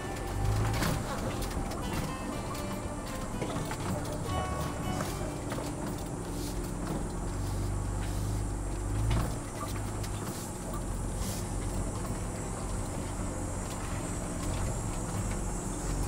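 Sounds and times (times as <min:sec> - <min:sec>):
truck engine running at low speed: 0:00.0 - 0:16.0.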